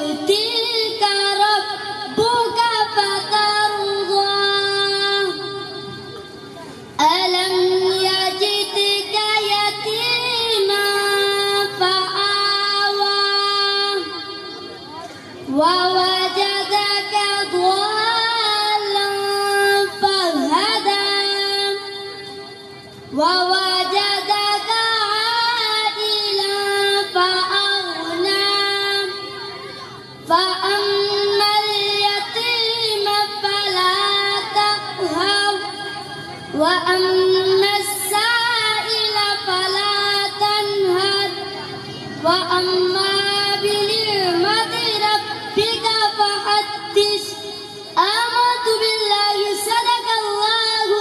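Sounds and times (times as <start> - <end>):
boy singing unaccompanied: 0.0 - 51.0.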